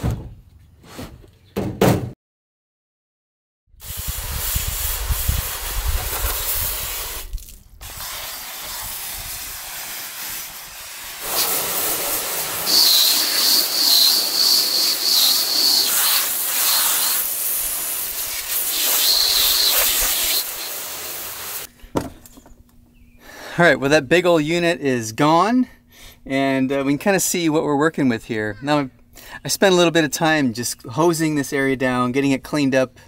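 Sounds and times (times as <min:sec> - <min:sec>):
hose spraying water on metal: 0:03.8 - 0:21.7
high steady whistle: 0:12.7 - 0:17.2, 0:18.7 - 0:20.8.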